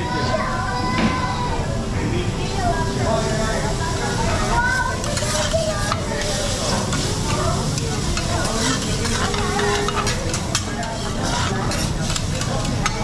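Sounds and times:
food sizzling on a griddle: 2.7 - 13.0
metal spatulas scraping steel plate: 5.0 - 7.1, 8.0 - 12.7.

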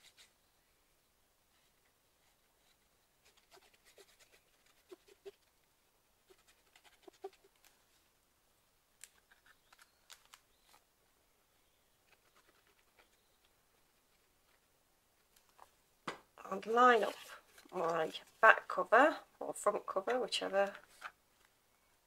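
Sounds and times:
paper clicks and scratches: 2.2 - 5.5, 6.3 - 7.8, 9.0 - 10.8, 12.0 - 14.6.

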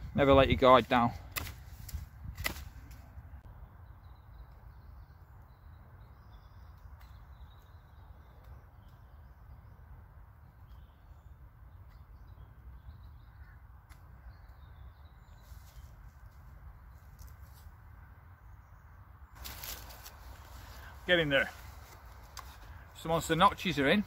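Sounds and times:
birds calling: 10.4 - 16.1, 18.6 - 24.0.

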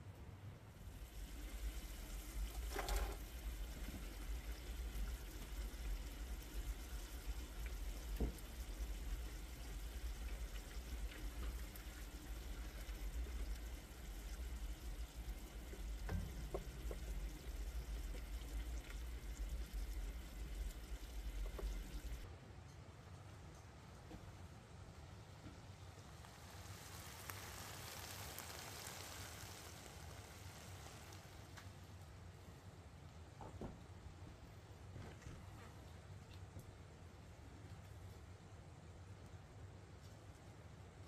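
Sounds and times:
sauce simmering and bubbling: 0.8 - 22.3, 25.7 - 32.2
soft knocks in pan: 16.0 - 17.2.

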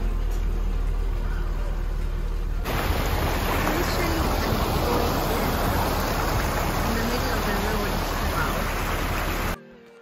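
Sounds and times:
car cabin rumble while driving: 0.0 - 9.6
river water rushing over cascade: 2.6 - 9.6.

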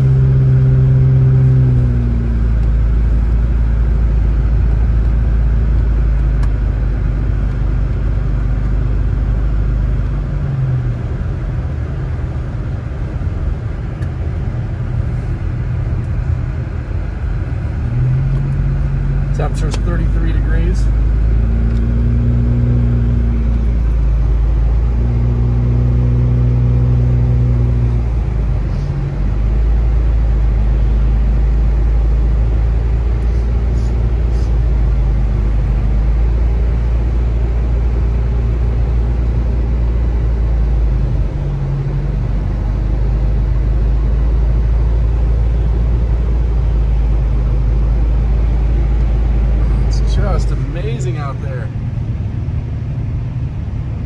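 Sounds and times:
engine and tyre rumble: 0.0 - 54.0
humming engine note: 0.0 - 54.0.

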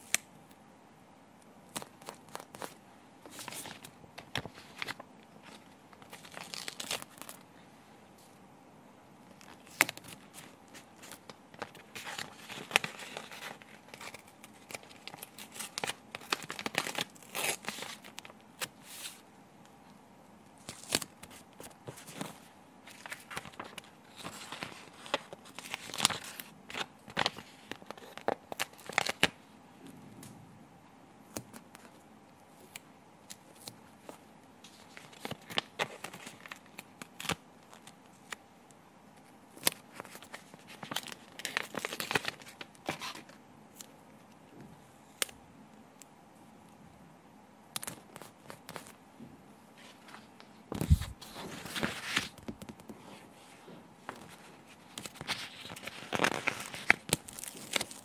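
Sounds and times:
backing paper crinkling: 1.8 - 7.4, 9.3 - 19.2, 20.7 - 29.4, 39.6 - 43.4, 54.1 - 58.0.

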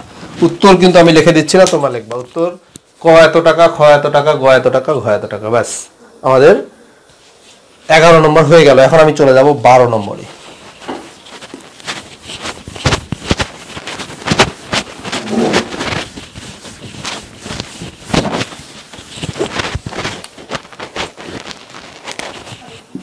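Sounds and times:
whiteboard being wiped: 7.1 - 23.0.

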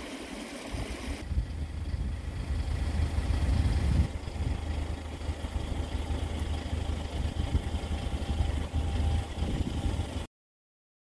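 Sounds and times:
stream running over rocks: 0.0 - 1.3.

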